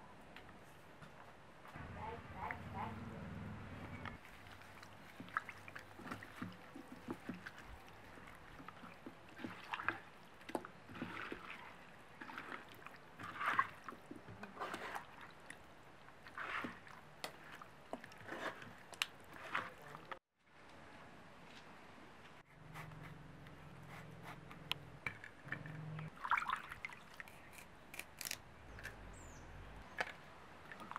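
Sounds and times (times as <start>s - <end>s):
hands squelching food in spice: 4.2s - 15.4s.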